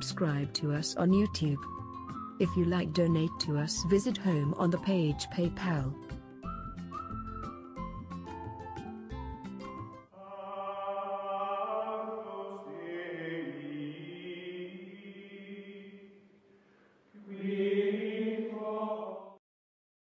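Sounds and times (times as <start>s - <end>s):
choral chanting: 10.2s - 16.2s, 17.2s - 19.4s.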